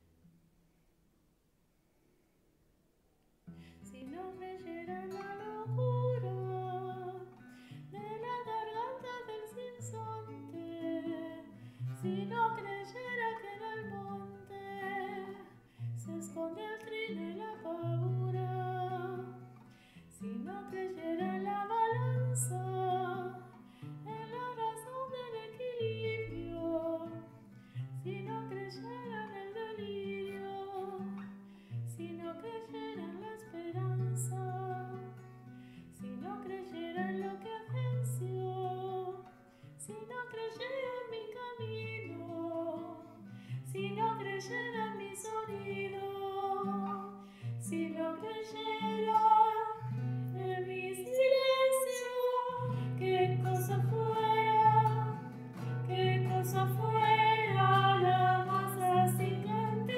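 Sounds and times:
guitar accompaniment: 0:03.5 - 0:59.9
person singing: 0:43.7 - 0:49.8, 0:50.4 - 0:59.9.

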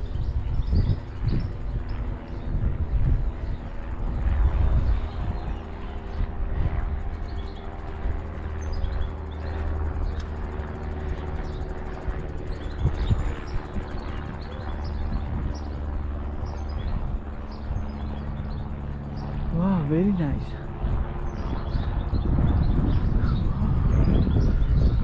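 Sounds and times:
small birds chirping: 0:00.0 - 0:25.0.

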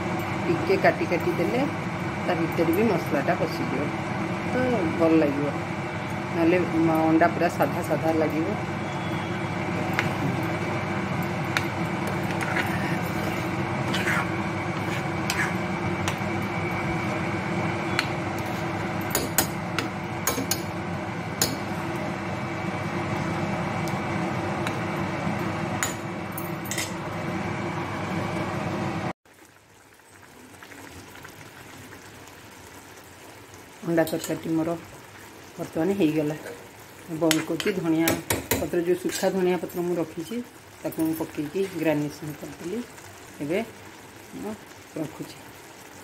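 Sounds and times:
fan-like hum: 0:00.0 - 0:29.1
spoon stirring in a pan: 0:09.8 - 0:17.2, 0:17.8 - 0:21.7.

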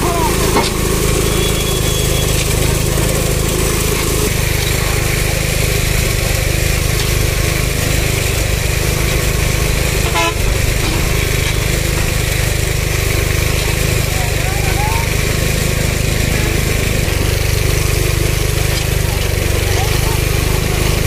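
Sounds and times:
small engine running: 0:00.0 - 0:21.0
brief high tone: 0:01.2 - 0:02.4.

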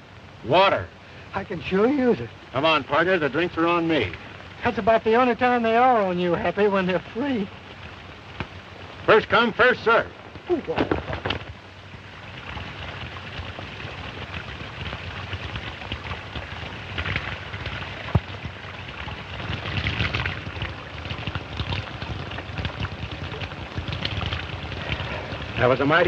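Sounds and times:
old film soundtrack hiss: 0:00.0 - 0:26.0
spring water trickling over rock: 0:00.0 - 0:26.0.

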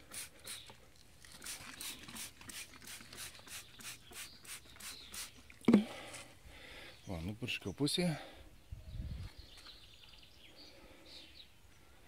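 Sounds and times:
spray bottle squirting: 0:00.0 - 0:05.8.

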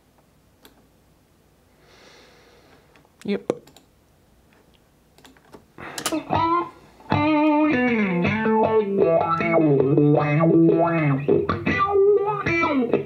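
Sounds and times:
distorted electric guitar: 0:05.8 - 0:13.0.

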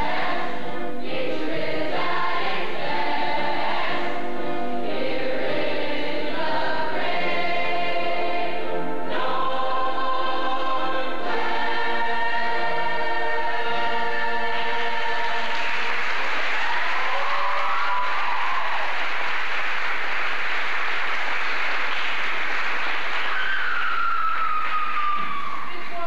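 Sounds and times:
chorus holding sung chord: 0:00.0 - 0:15.6
audience applause: 0:15.3 - 0:26.0
audience cheering: 0:16.2 - 0:26.0.

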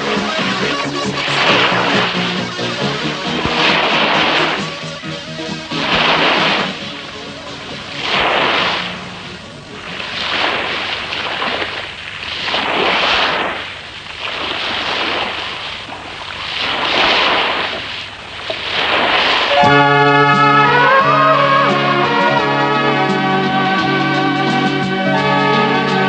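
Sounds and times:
waves rushing: 0:00.0 - 0:26.0.

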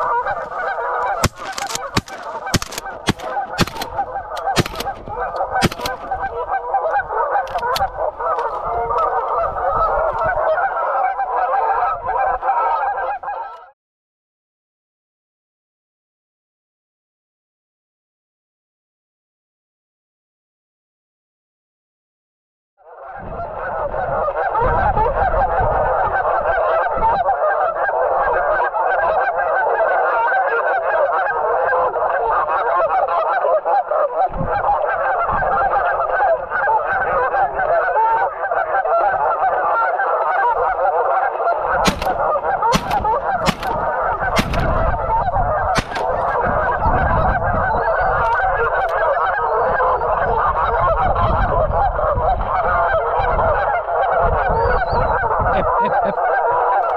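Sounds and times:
geese honking: 0:00.0 - 0:13.7, 0:23.5 - 0:56.9
sharp cracks: 0:00.3 - 0:06.4, 0:41.8 - 0:44.9, 0:45.8 - 0:46.8.

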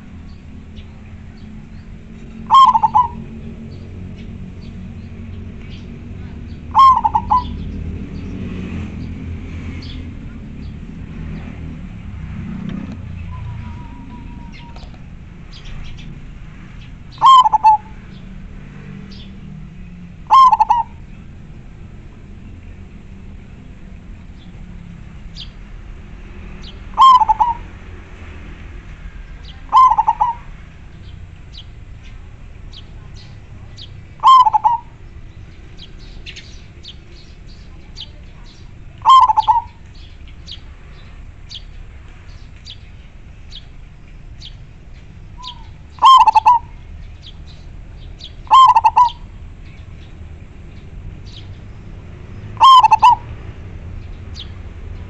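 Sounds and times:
dove cooing: 0:02.2 - 0:03.7, 0:06.4 - 0:07.8, 0:17.1 - 0:18.2, 0:20.2 - 0:21.1, 0:26.7 - 0:27.8, 0:29.6 - 0:31.1, 0:33.8 - 0:35.0, 0:39.0 - 0:39.8, 0:45.4 - 0:46.9, 0:47.9 - 0:49.4, 0:52.6 - 0:53.5.

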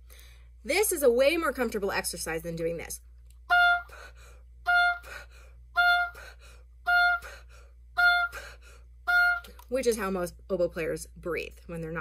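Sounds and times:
oboe notes: 0:03.5 - 0:04.0, 0:04.6 - 0:07.4, 0:08.0 - 0:09.6.

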